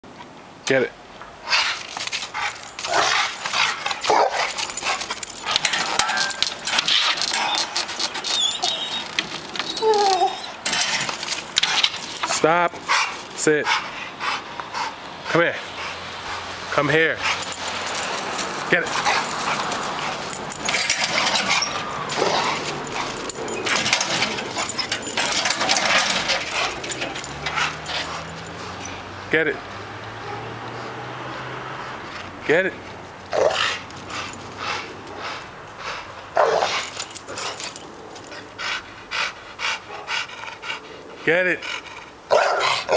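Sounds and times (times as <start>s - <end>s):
metallic jingling and rattling: 1.7s - 13.4s, 17.0s - 29.2s, 33.1s - 38.8s
dog whining excitedly: 2.3s - 12.3s, 17.3s - 29.0s.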